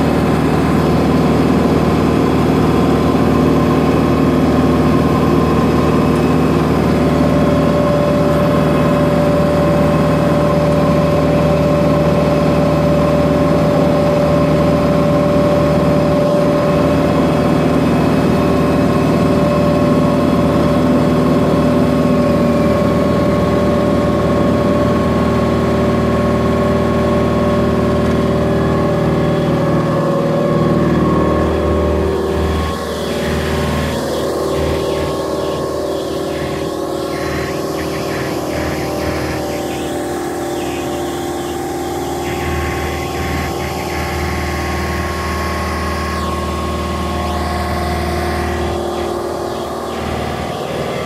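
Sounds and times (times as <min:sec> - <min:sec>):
steady whine: 0:00.0 - 0:51.0
diesel engine idling: 0:26.2 - 0:51.0.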